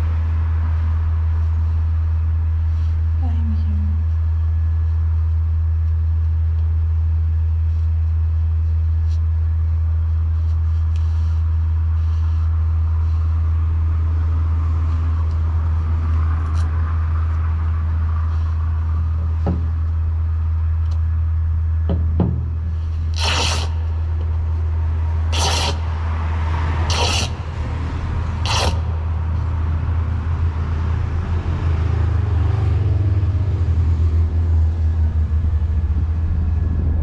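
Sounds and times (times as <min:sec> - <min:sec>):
steady low rumble: 0:00.0 - 0:37.0
car passing: 0:13.0 - 0:21.4, 0:22.5 - 0:37.0.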